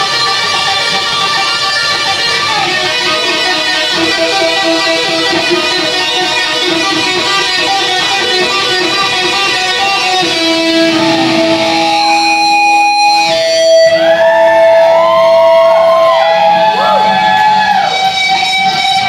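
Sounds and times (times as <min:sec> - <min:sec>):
electric guitar solo: 0:00.0 - 0:19.0.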